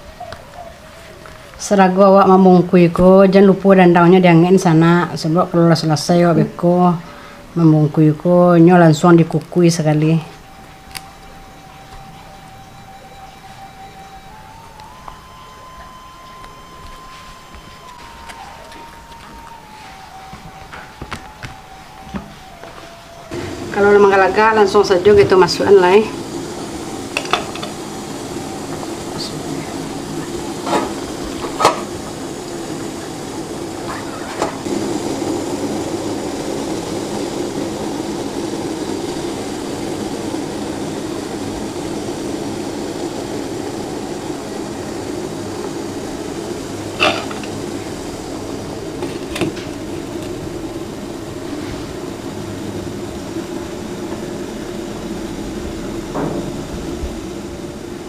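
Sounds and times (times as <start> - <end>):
steamer pot rushing: 23.3 - 58.0.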